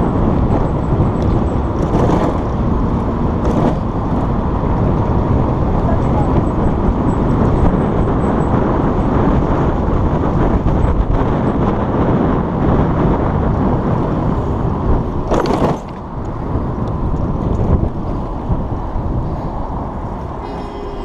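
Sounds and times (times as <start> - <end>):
traffic rumble: 0.0 - 21.0.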